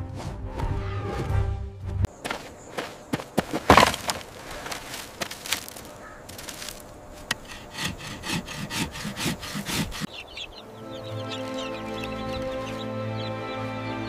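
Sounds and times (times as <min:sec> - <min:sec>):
dry sticks clattering on ground: 0:03.1 - 0:08.0
stick rubbed across dry wood: 0:06.6 - 0:10.1.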